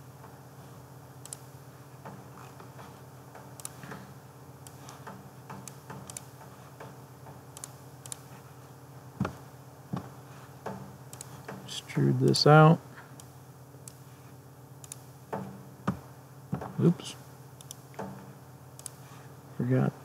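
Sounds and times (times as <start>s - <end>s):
steady low hum: 0.0s - 20.0s
computer mouse clicking: 1.2s - 1.5s, 2.1s - 4.0s, 4.6s - 8.4s, 10.7s - 11.6s, 14.8s - 15.5s, 17.6s - 18.1s, 18.8s - 19.0s.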